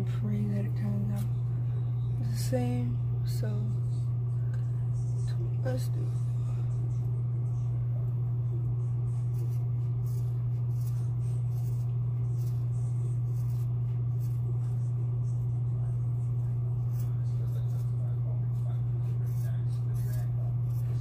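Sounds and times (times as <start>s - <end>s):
loud steady low hum: 0.0s - 21.0s
scissors snipping hair: 9.2s - 14.9s, 18.6s - 21.0s.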